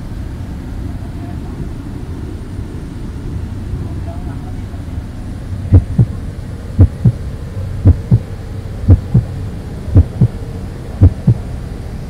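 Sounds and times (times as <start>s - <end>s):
low steady hum: 0.0s - 12.0s
heartbeat double thump: 5.7s - 6.1s, 6.8s - 7.2s, 7.8s - 8.2s, 8.9s - 9.3s, 10.0s - 10.4s, 11.0s - 11.4s.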